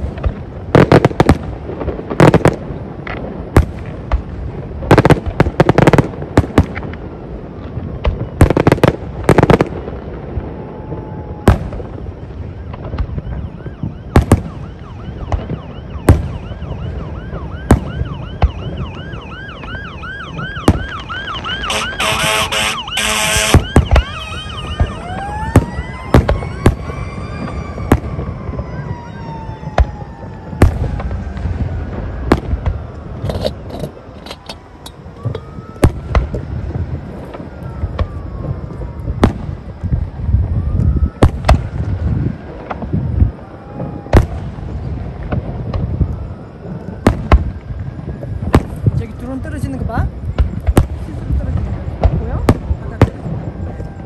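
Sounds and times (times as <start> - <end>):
fireworks banging: 0.0 - 54.0
siren wailing: 9.4 - 50.3, 51.2 - 54.0.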